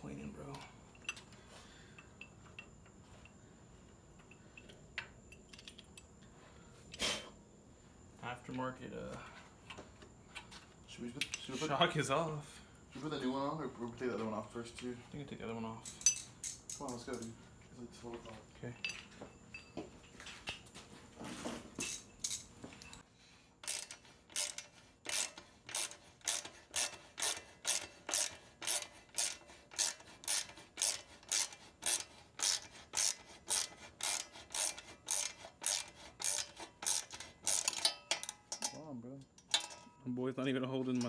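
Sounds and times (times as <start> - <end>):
metal clinks: 2.0 - 3.4, 15.8 - 17.4, 18.7 - 20.2, 21.8 - 23.0, 37.0 - 40.1
socket ratchet clicking: 23.6 - 38.7.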